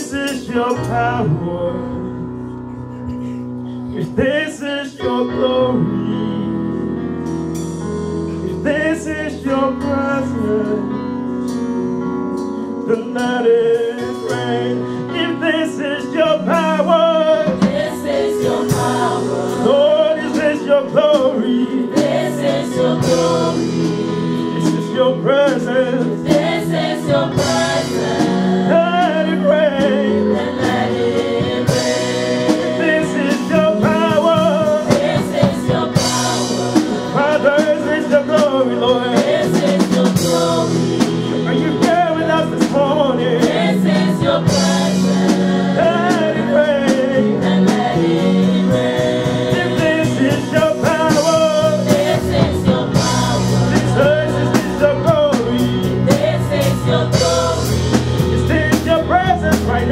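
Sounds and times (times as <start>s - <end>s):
drum kit and band: 0.0s - 4.8s, 6.0s - 59.9s
group singing gospel: 12.9s - 59.9s.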